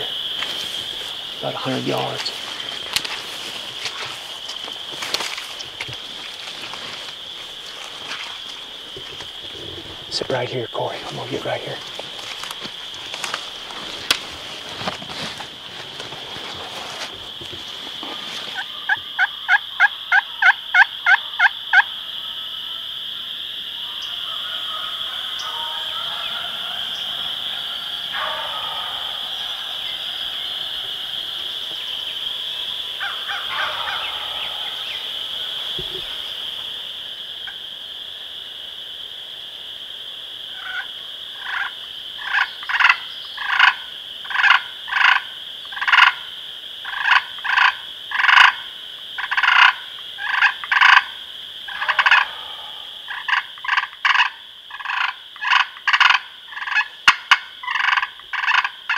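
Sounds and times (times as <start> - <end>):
frogs calling: 0.0 - 58.9
turkey gobbling: 17.6 - 21.9, 23.9 - 31.5, 33.0 - 36.2, 40.6 - 46.2, 46.8 - 48.6, 49.2 - 51.1, 51.7 - 58.9.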